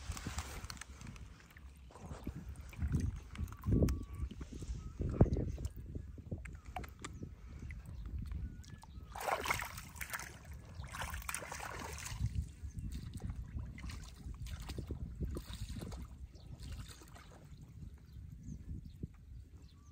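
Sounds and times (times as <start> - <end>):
water splashing from wading: 8.7 - 17.5.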